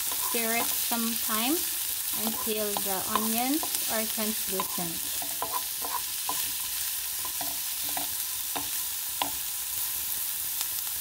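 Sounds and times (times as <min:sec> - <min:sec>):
wooden spatula scraping pan: 0:00.0 - 0:01.4, 0:02.1 - 0:08.8
vegetables sizzling in oil: 0:00.0 - 0:11.0.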